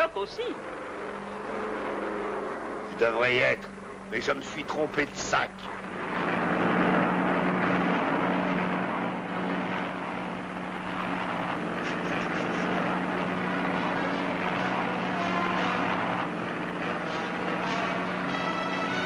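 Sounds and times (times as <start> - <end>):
propeller airplane engines droning: 0.0 - 19.0.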